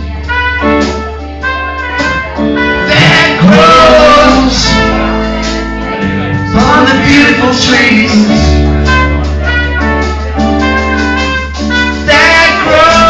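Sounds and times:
bass line: 0.0s - 13.0s
drums: 0.0s - 13.0s
keyboard: 0.0s - 13.0s
trumpet lead: 0.0s - 13.0s.

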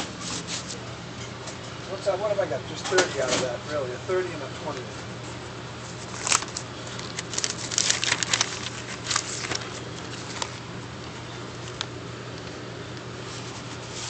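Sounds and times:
steady low hum: 0.0s - 14.0s
newspaper rustling and crackling: 5.8s - 12.6s, 13.2s - 14.0s.

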